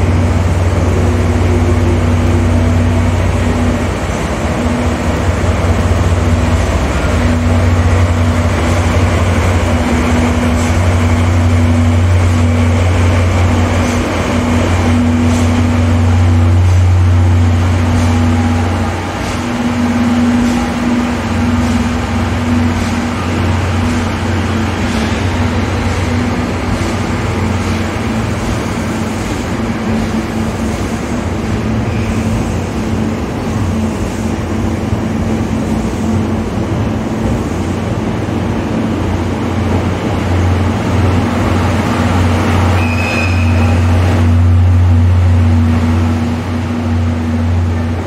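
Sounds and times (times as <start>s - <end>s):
diesel locomotive drone: 0.0s - 48.0s
train cars rumbling: 0.0s - 48.0s
high train whistle: 42.6s - 44.4s.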